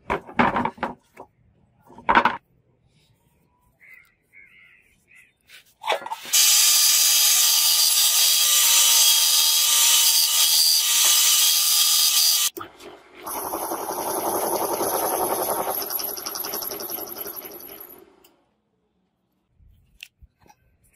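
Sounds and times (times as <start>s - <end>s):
power saw cutting metal: 6.3s - 12.6s, 13.2s - 18.1s
metal lathe cutting: 6.4s - 12.5s, 13.3s - 18.0s.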